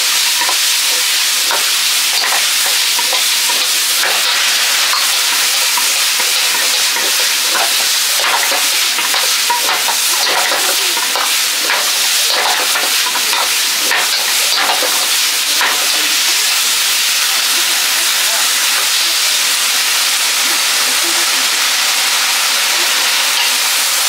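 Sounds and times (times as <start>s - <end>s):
metal ladle scraping wok: 0.0s - 18.0s
loud wok sizzle: 0.0s - 24.0s.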